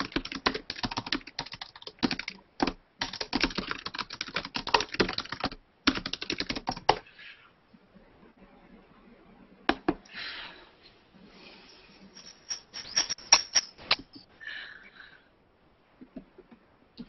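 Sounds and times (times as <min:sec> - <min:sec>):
short rustling: 0:11.3 - 0:14.2.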